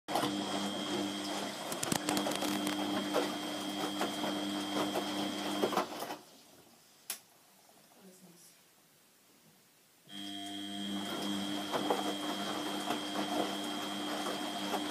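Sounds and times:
washing machine motor whine: 0:00.1 - 0:06.0, 0:10.1 - 0:14.9.

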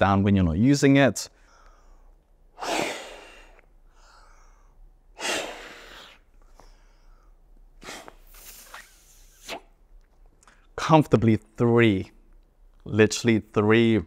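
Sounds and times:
person blowing into pillow valve: 0:02.6 - 0:03.6, 0:05.2 - 0:06.3, 0:07.8 - 0:09.8.

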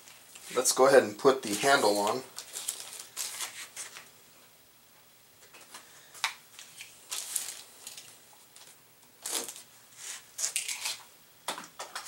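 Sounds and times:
plastic packaging rustling: 0:00.0 - 0:04.1, 0:05.6 - 0:11.1.

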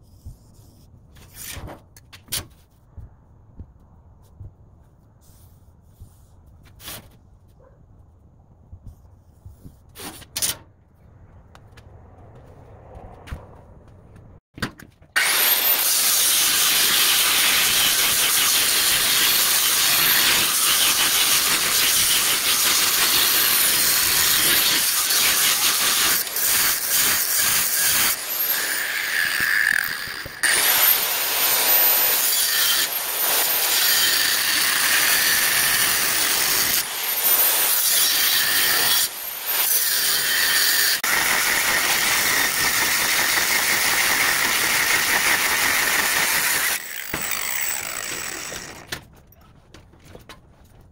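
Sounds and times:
angle grinder cutting steel: 0:15.2 - 0:48.9.

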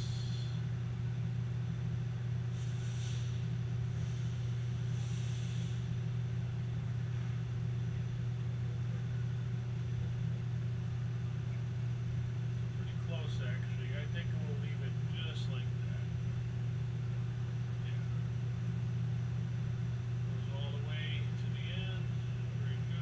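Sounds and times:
lathe humming idle: 0:00.0 - 0:23.0
faint brief hisses: 0:02.6 - 0:03.4.

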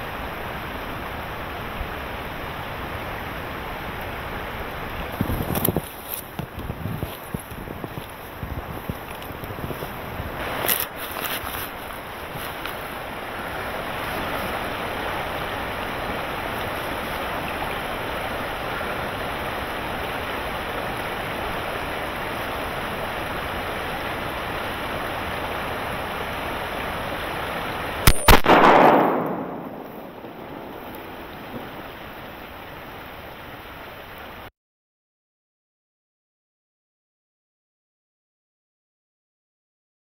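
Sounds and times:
wind on microphone: 0:04.9 - 0:17.6
shotgun shot: 0:28.1 - 0:31.2.

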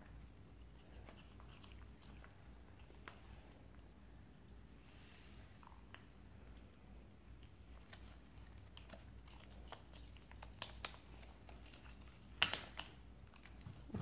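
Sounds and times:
paper crinkling and ticking: 0:07.7 - 0:13.9.

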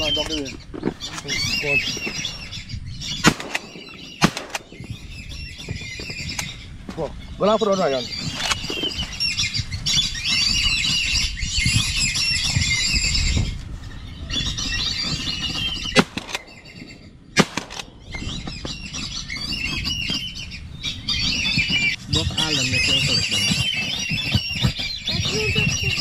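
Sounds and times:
ducks whistling calls: 0:00.0 - 0:26.0
gunshots: 0:03.2 - 0:04.8, 0:17.4 - 0:18.0.

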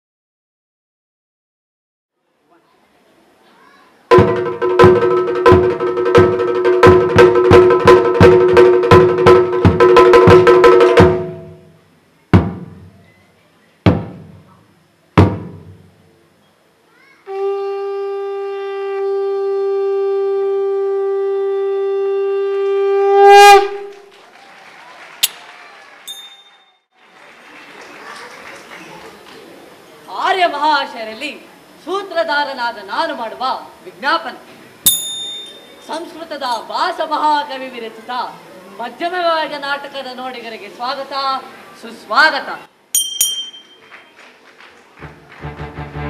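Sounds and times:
barrel drum beaten with sticks: 0:04.1 - 0:11.6, 0:12.3 - 0:13.0, 0:13.9 - 0:14.6, 0:15.2 - 0:15.9
conch shell blown: 0:17.3 - 0:24.1.

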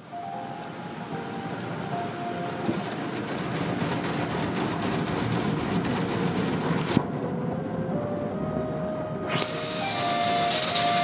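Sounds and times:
car wash brushes scrubbing car: 0:02.6 - 0:07.0.

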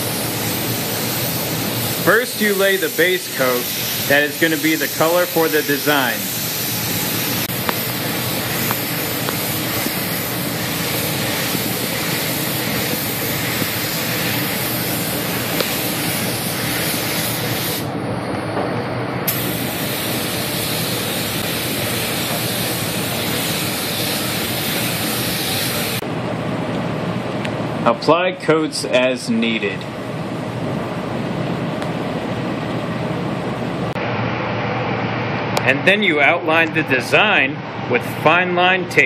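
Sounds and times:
paint spray gun hissing: 0:00.0 - 0:17.9, 0:19.3 - 0:26.0.

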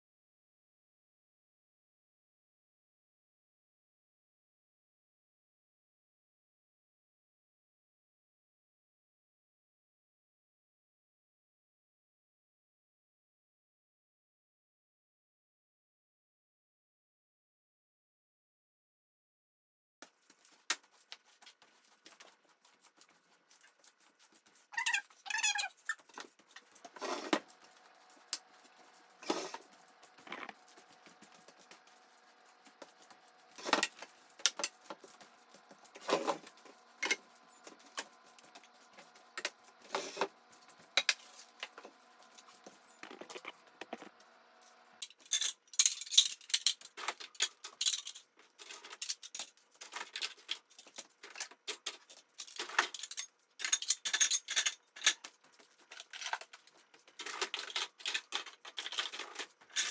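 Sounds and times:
broom sweeping hard floor: 0:20.1 - 0:44.8.

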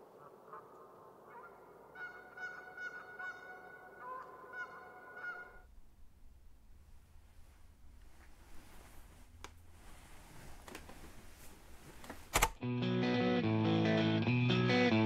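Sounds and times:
geese honking: 0:00.1 - 0:05.7.

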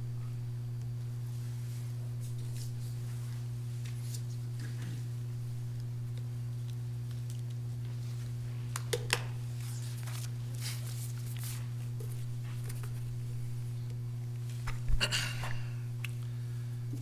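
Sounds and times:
steady low hum: 0:00.0 - 0:17.0
paper rustling: 0:09.5 - 0:13.2.

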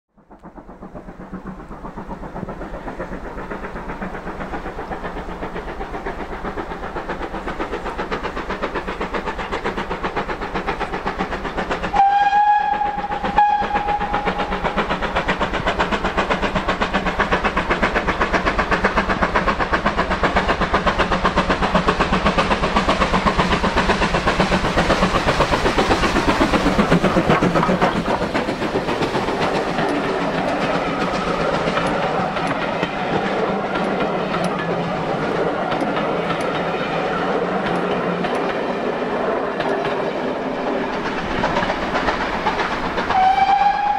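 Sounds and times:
steam locomotive exhaust beating: 0:00.1 - 0:43.9
train coaches passing: 0:00.2 - 0:43.9
steam whistle: 0:11.9 - 0:14.5, 0:43.1 - 0:43.9.

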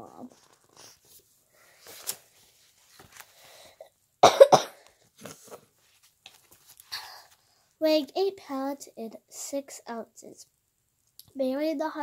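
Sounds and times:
book rustling and tapping: 0:00.3 - 0:03.4, 0:05.2 - 0:06.9
child coughing: 0:04.2 - 0:04.8.

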